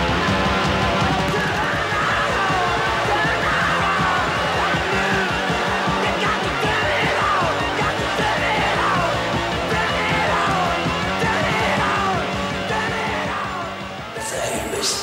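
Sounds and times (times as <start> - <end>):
hard rock music: 0.0 - 15.0
person yelling vocals: 14.2 - 15.0.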